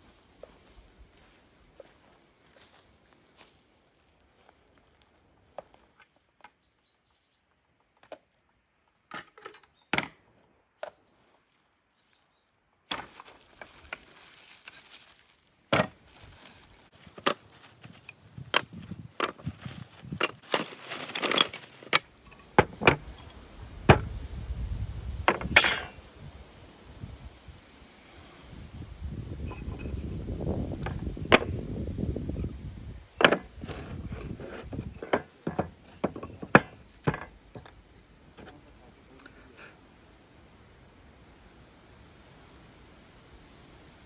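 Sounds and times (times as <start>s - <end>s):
plastic bag rustling: 13.1s - 22.1s
wooden boards knocking together: 15.7s - 16.0s, 17.0s - 23.0s, 34.8s - 37.7s.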